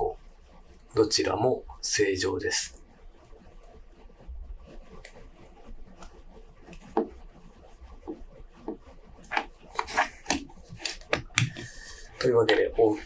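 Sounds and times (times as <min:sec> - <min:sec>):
watch crown clicking and rubbing: 0:04.6 - 0:13.0.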